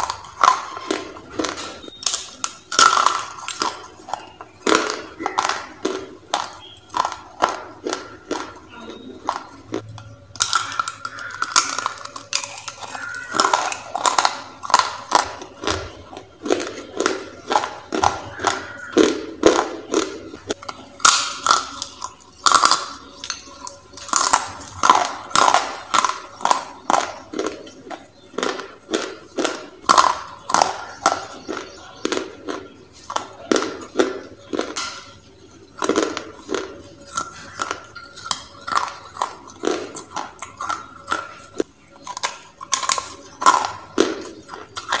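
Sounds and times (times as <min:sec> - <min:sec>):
crisp crunching bites: 0:10.4 - 0:35.1.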